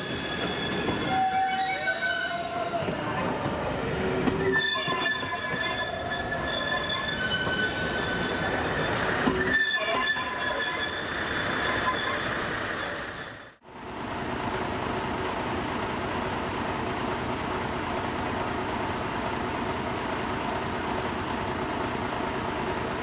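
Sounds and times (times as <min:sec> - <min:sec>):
wheel flanges squealing: 0:00.2 - 0:03.6, 0:04.2 - 0:13.6.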